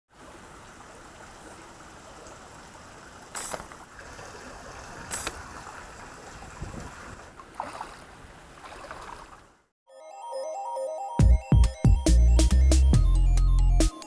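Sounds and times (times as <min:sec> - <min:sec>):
outdoor background noise: 0:00.1 - 0:09.7.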